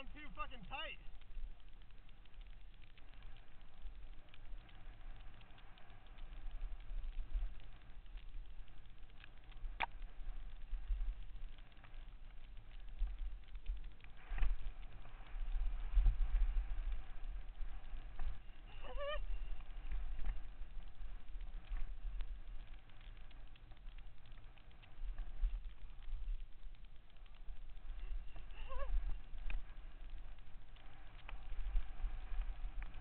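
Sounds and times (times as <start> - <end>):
bike tyres over dirt: 0.0 - 33.0
wind on microphone: 12.9 - 22.8, 25.1 - 33.0.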